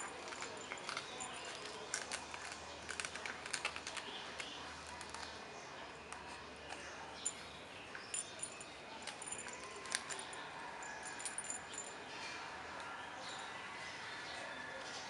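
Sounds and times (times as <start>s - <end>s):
collar jingling: 0.0s - 2.2s, 7.2s - 12.0s.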